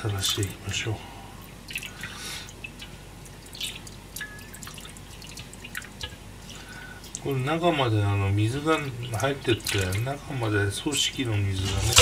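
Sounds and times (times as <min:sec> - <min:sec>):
water splashing in metal bowl: 0:01.6 - 0:07.5, 0:08.5 - 0:10.2, 0:11.5 - 0:12.0.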